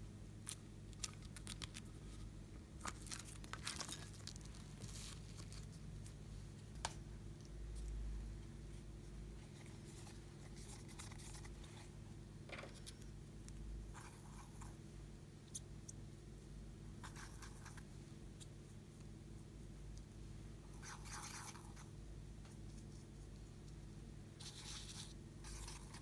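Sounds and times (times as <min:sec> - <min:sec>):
low steady hum: 0:00.0 - 0:26.0
makeup brush scratching powder: 0:24.4 - 0:26.0.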